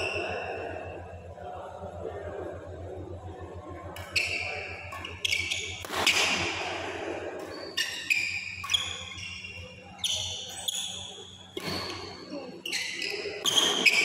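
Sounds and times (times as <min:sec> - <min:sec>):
shoes squeaking on court: 0:04.0 - 0:06.4, 0:07.4 - 0:14.0
racket hitting shuttlecock: 0:05.0 - 0:06.8.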